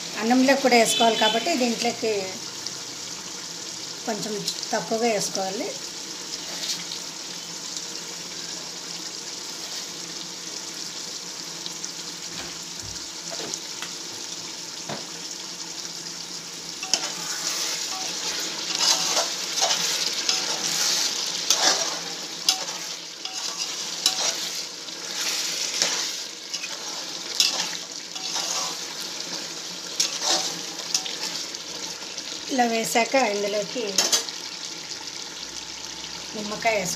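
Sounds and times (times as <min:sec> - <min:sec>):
food sizzling in metal pot: 0:00.0 - 0:36.9
spoon stirring and scraping: 0:16.8 - 0:29.4, 0:30.0 - 0:31.5.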